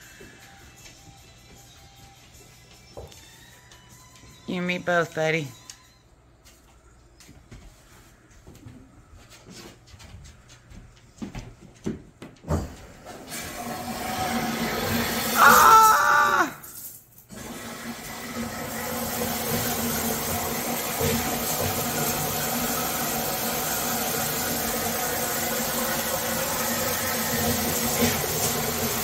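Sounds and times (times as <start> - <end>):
shower water spraying: 13.0 - 29.0
short loud squeal: 15.3 - 16.5.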